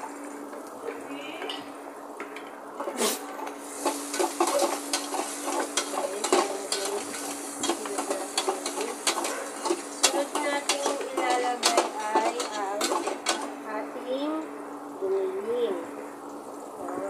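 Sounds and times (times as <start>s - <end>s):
metal spoon scraping pot: 2.9s - 13.6s
food sizzling in oil: 3.5s - 13.7s.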